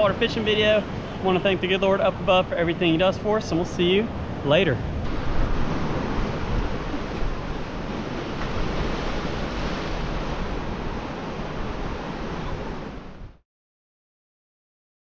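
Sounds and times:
ocean waves breaking: 0.0 - 13.4
wind buffeting microphone: 0.0 - 13.4.

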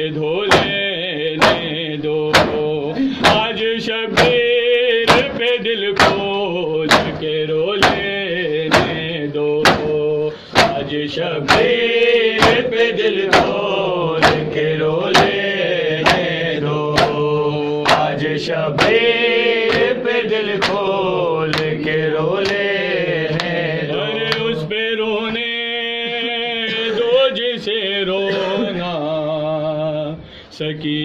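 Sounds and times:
male voices chanting a lament: 0.0 - 31.0
hands slapping on chests: 5.1 - 6.3, 6.9 - 8.1, 11.5 - 11.8, 13.3 - 13.6, 16.0 - 16.4, 17.8 - 20.9, 21.5 - 22.7, 23.3 - 23.6, 24.3 - 24.5.

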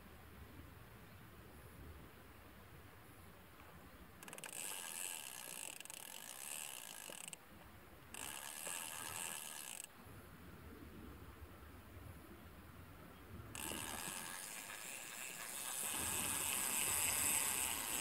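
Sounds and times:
fishing reel ratcheting whir: 4.2 - 7.4, 8.1 - 9.9, 13.6 - 18.0.

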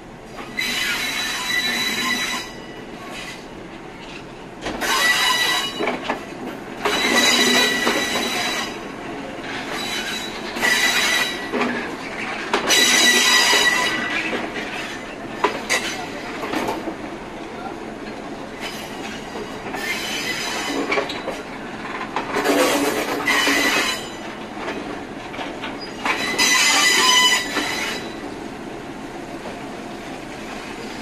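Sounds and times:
rumble and clatter of wheels: 0.3 - 17.0, 18.0 - 28.2
train wheels squealing: 0.4 - 3.4, 4.8 - 6.0, 6.8 - 8.9, 9.5 - 11.7, 12.7 - 15.1, 18.6 - 21.4, 22.4 - 24.4, 25.8 - 28.3.

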